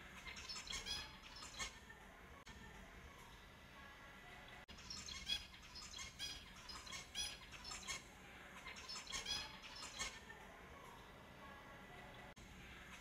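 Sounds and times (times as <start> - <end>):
finches calling: 0.0 - 1.8, 4.7 - 10.2.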